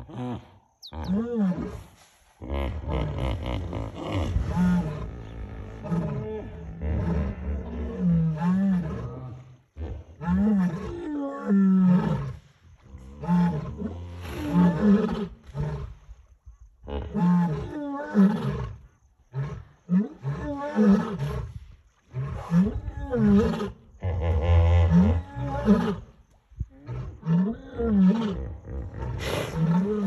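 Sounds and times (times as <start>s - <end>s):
lions roaring: 2.7s - 12.2s.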